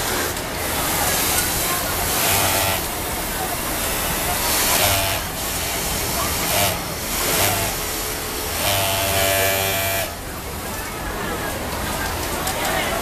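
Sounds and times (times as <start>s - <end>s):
overlock sewing machine running: 0.1s - 10.2s.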